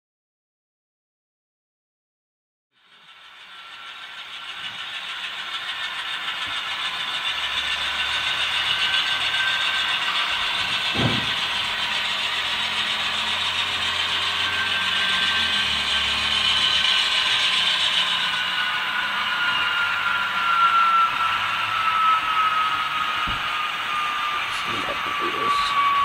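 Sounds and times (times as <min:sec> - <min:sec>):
model train running on track: 0:02.8 - 0:26.0
short knock: 0:11.0 - 0:11.4.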